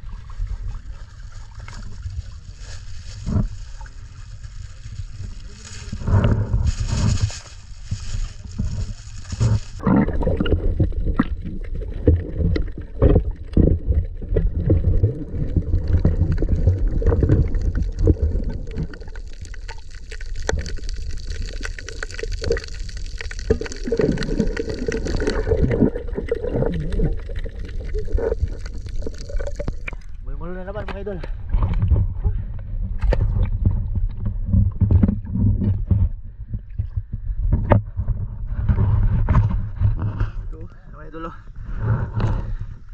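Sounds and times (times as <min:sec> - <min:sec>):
water splashing: 0:00.0 - 0:30.2
underwater gurgling and knocking: 0:08.4 - 0:30.2, 0:30.8 - 0:40.3.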